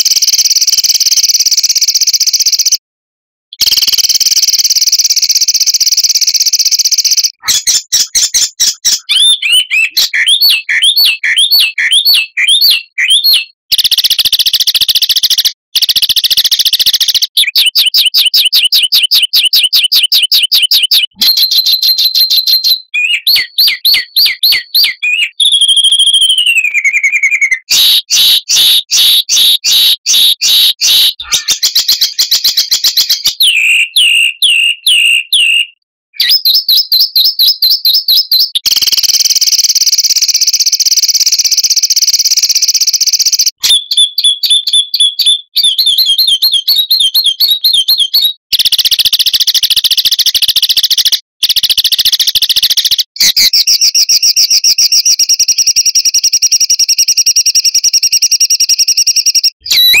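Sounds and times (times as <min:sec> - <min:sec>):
rapid songbird song: 0:00.0 - 0:02.8, 0:03.6 - 1:00.0
bird falling whistle: 0:59.6 - 1:00.0.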